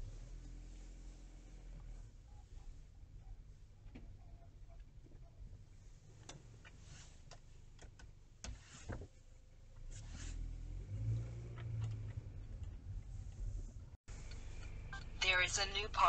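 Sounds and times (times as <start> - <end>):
low car rumble: 9.0 - 16.0.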